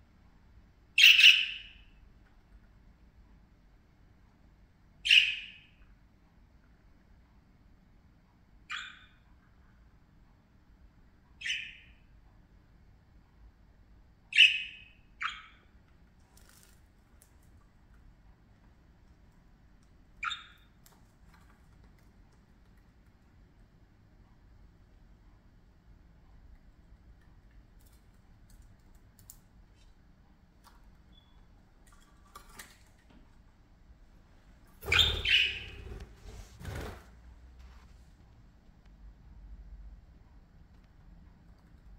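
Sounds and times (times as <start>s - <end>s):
budgerigar chirping: 1.0s - 1.8s, 5.0s - 5.7s, 8.7s - 9.2s, 11.4s - 12.0s, 14.3s - 15.7s, 20.2s - 20.7s, 34.8s - 35.9s
bird claws and beak tapping: 27.5s - 29.9s.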